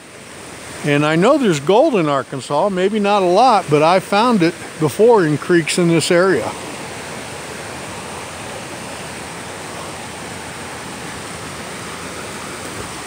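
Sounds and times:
creek rushing over rocks: 0.0s - 13.0s.

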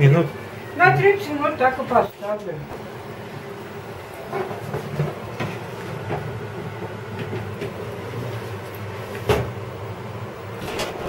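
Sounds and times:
steady low hum: 0.0s - 11.0s
metal baking tray clattering: 10.6s - 11.0s
oven door shutting: 10.6s - 11.0s.

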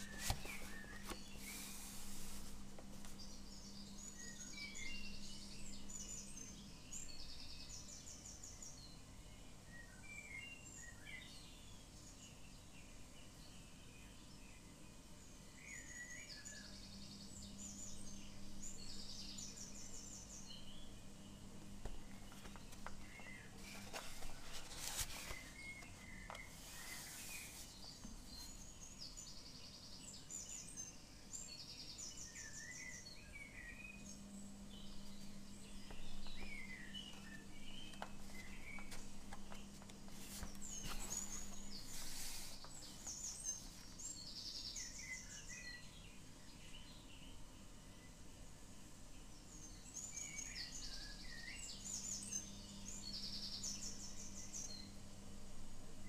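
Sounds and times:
paper page turning: 0.0s - 3.4s, 21.8s - 28.5s, 37.2s - 44.0s
songbirds chirping and trilling: 0.0s - 56.0s.

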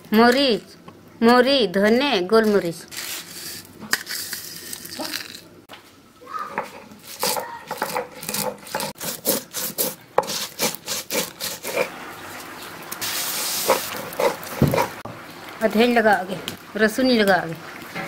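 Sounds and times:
stone scraping on stone: 2.9s - 5.1s.

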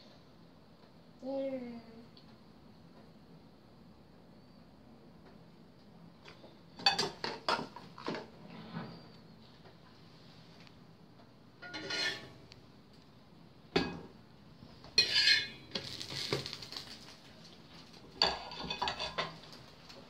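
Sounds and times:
dishes clattering and clinking: 6.3s - 8.4s, 11.6s - 12.4s, 13.7s - 14.1s, 14.9s - 16.6s, 18.1s - 19.6s.

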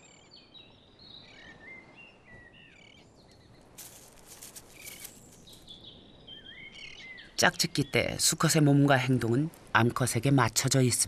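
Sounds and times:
small birds chirping: 0.0s - 9.4s
brief crackle: 3.8s - 5.6s.

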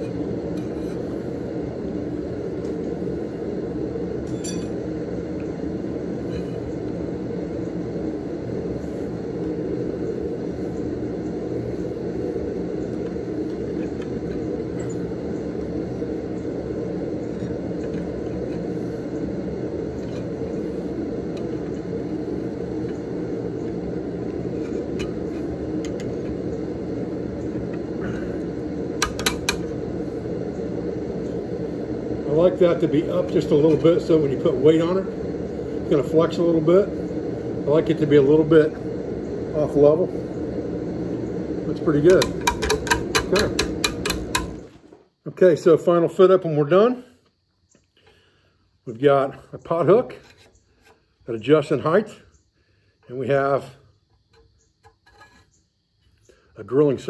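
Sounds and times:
forge roaring: 0.0s - 44.8s.

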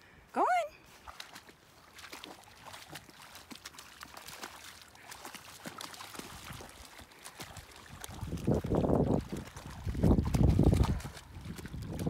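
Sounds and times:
dogs splashing through water: 0.8s - 12.0s
wind buffeting microphone: 7.5s - 12.0s.

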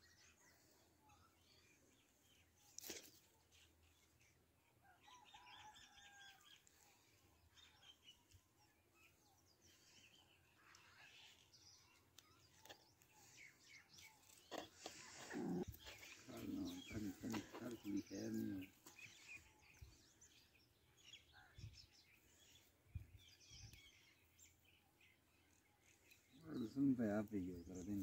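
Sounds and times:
faint bird chirps: 0.0s - 28.0s.

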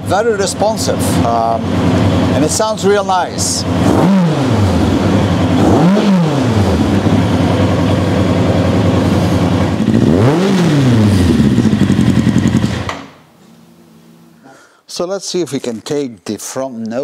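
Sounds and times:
motorcycle engine idling and revving: 0.0s - 13.2s.

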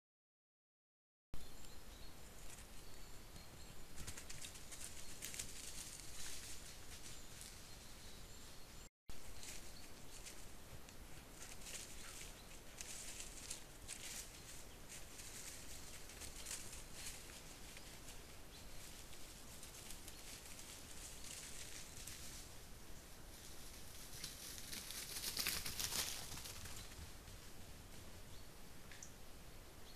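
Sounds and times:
feet rustling in dry leaves: 4.3s - 7.8s, 11.3s - 18.2s.

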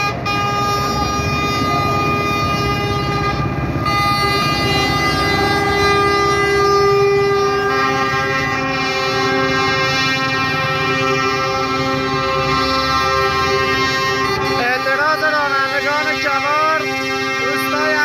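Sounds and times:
truck air horns blaring: 0.0s - 18.0s.

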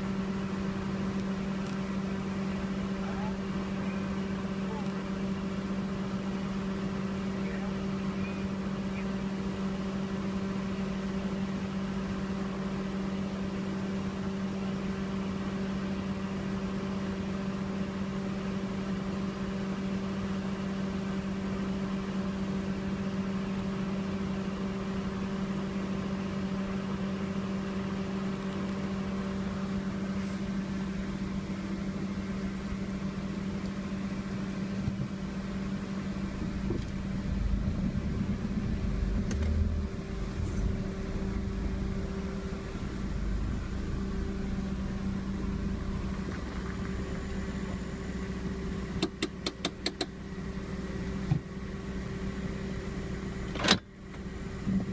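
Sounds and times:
machine hum: 27.8s - 54.9s.

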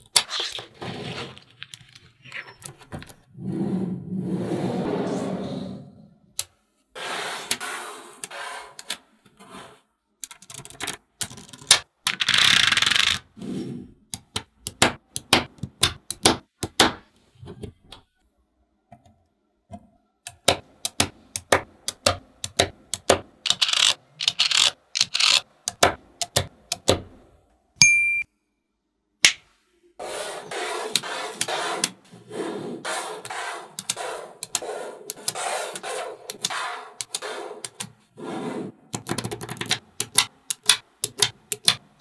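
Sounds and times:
magnetic balls clicking: 39.0s - 41.8s.

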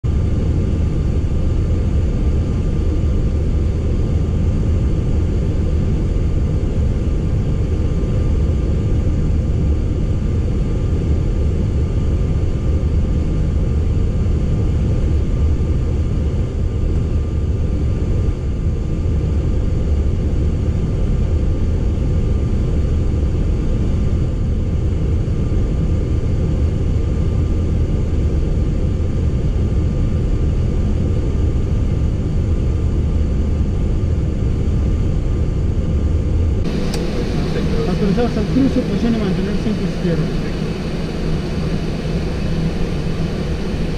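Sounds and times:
low aircraft rumble: 0.0s - 43.9s
faint steady whine: 0.1s - 43.9s.

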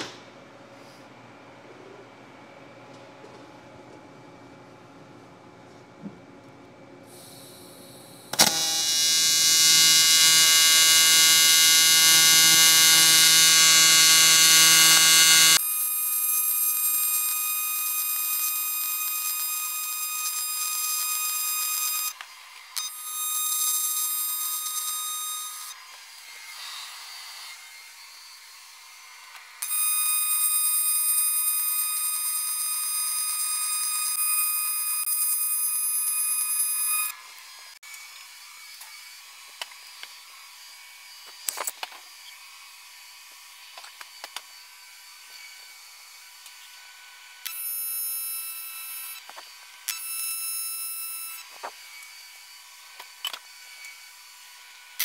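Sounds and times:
welding arc buzzing: 7.1s - 22.2s
welding arc striking click: 8.3s - 9.1s.

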